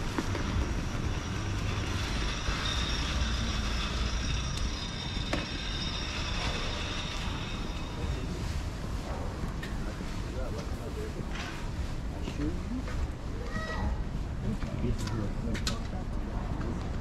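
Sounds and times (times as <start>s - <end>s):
faint high whine: 0.0s - 8.8s
vehicle engine rumbling: 0.0s - 12.5s.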